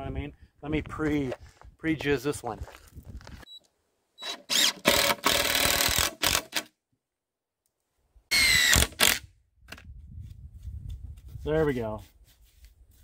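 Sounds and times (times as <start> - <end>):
cordless drill boring into wood: 4.2 - 6.7, 8.3 - 9.2.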